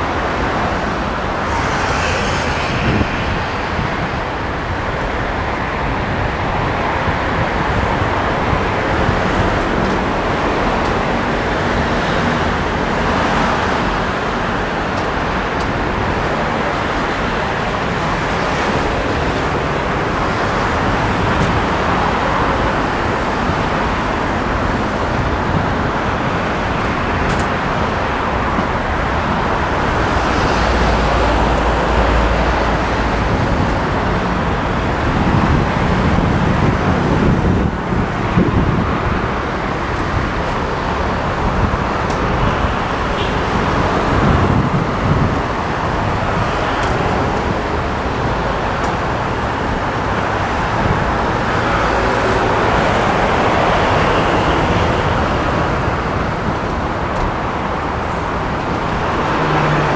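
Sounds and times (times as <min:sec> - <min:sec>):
road traffic noise: 0:00.0 - 0:59.9
deep low rumble: 0:01.3 - 0:05.3.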